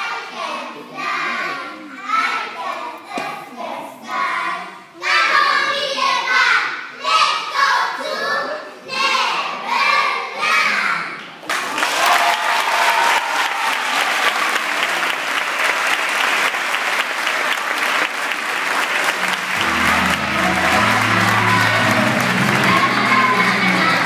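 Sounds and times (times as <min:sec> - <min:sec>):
audience applause: 0:11.4 - 0:24.0
background music with bass line: 0:19.6 - 0:24.0
children calling out: 0:19.6 - 0:24.0.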